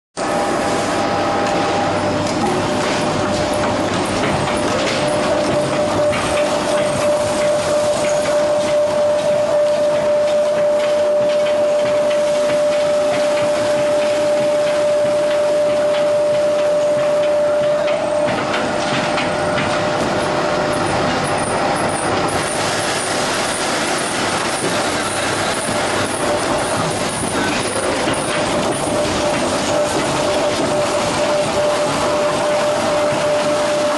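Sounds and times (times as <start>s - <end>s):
steady machine hum: 0.2s - 33.9s
veneer lathe mechanical noise: 0.2s - 33.9s.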